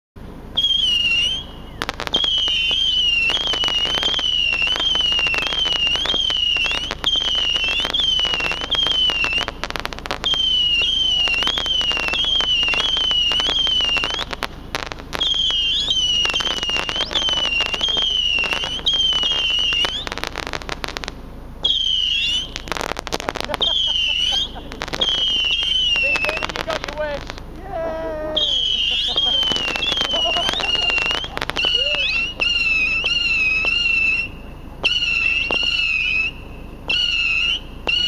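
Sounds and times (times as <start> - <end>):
whistling firework missiles: 0.2 - 38.0
rapid crackling pops: 0.4 - 38.0.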